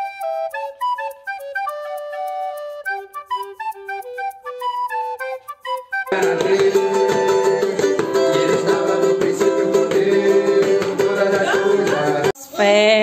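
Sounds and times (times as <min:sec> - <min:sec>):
ukulele strumming: 0:06.1 - 0:12.3.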